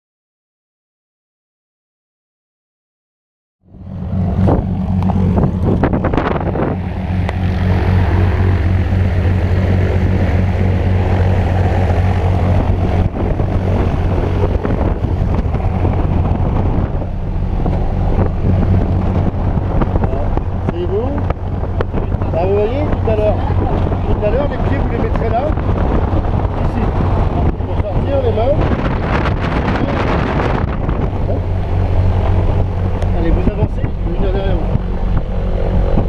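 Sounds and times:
propeller plane engine droning: 0:03.6 - 0:36.0.

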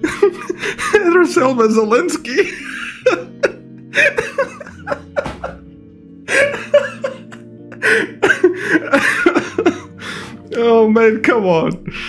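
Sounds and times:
man laughing hard: 0:00.0 - 0:01.2, 0:02.4 - 0:10.2
background music: 0:00.0 - 0:12.0.

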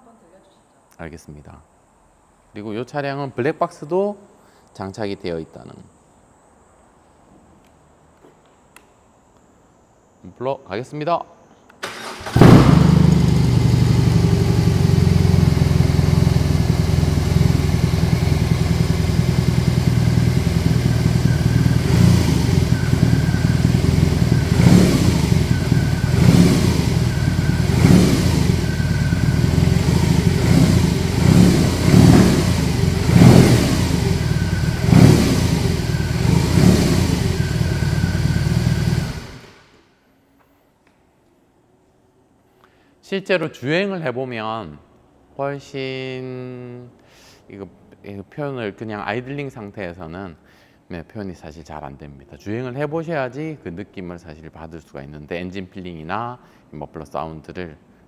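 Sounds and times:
motorcycle engine idling and revving: 0:12.1 - 0:39.7.

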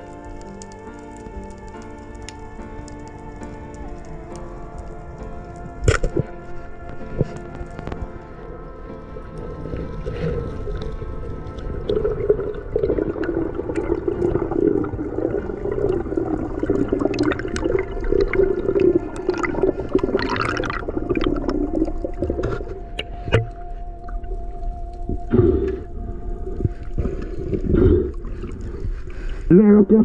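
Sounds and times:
water sloshing and gurgling: 0:04.0 - 0:29.5.

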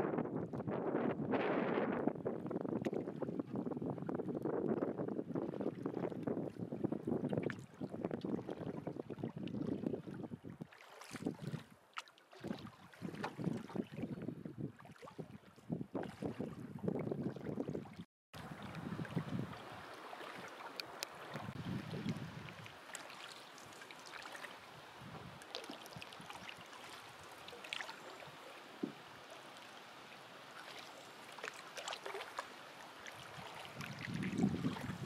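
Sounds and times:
wind buffeting microphone: 0:00.0 - 0:11.7, 0:12.5 - 0:20.4, 0:21.2 - 0:22.8, 0:24.8 - 0:26.6, 0:33.2 - 0:35.0
water lapping along a canoe hull: 0:00.0 - 0:35.0
paddle splashes and drips: 0:02.4 - 0:35.0.

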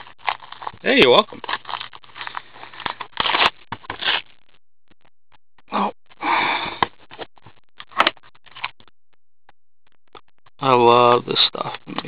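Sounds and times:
foil wrappers crinkling: 0:00.0 - 0:04.3.

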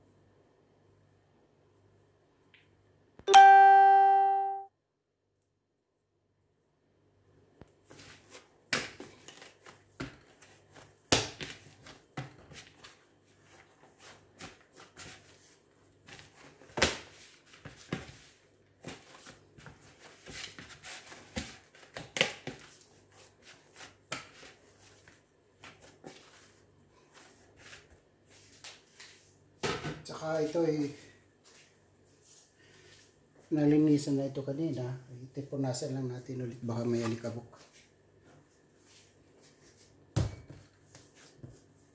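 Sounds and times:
dough squishing and rustling: 0:07.7 - 0:29.5, 0:36.8 - 0:41.9.

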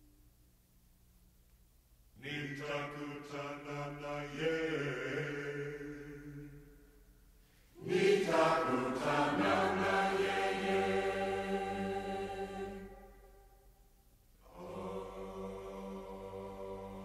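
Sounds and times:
group singing unaccompanied: 0:02.2 - 0:06.6, 0:07.8 - 0:13.4, 0:14.4 - 0:17.0.

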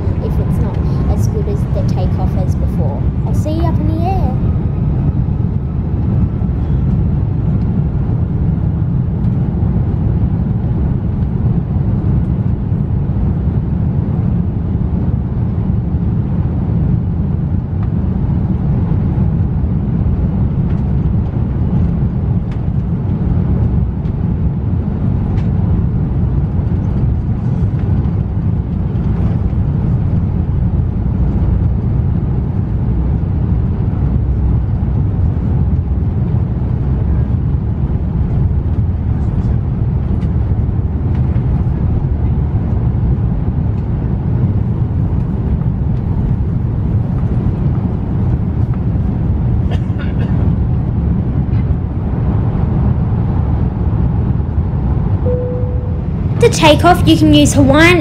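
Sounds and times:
airliner cabin rumble: 0:00.0 - 0:58.0.

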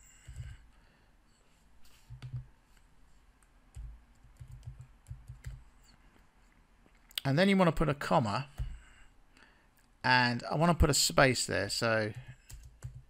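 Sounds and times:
typing on computer keyboard: 0:03.7 - 0:05.6, 0:12.1 - 0:13.0.

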